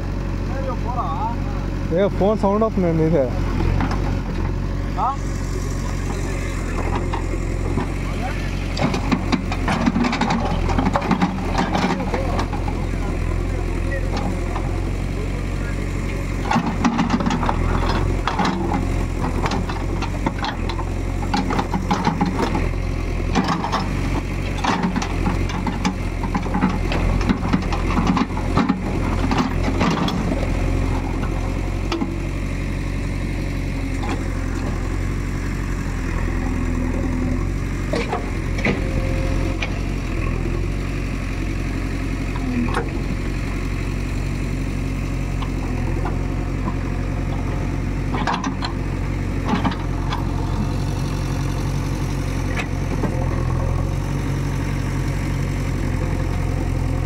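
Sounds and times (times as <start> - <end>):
diesel engine running: 0.0 - 57.0
knocks and clatter: 8.8 - 12.7, 16.5 - 22.6.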